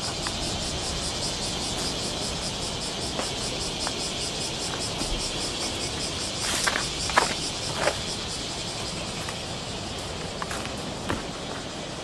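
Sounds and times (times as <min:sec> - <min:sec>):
insects chorus high pulses: 0:00.0 - 0:12.0
footsteps in dry undergrowth: 0:09.0 - 0:11.8.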